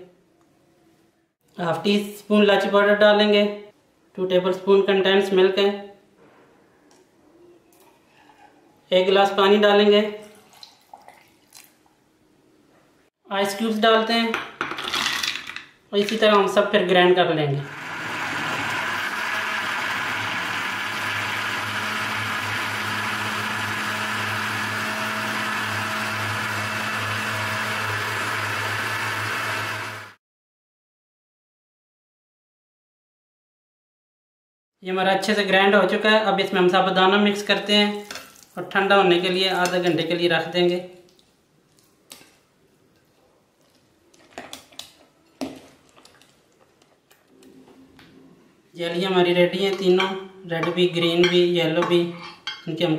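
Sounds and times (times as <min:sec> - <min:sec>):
electric blender running: 0:17.6 - 0:30.2.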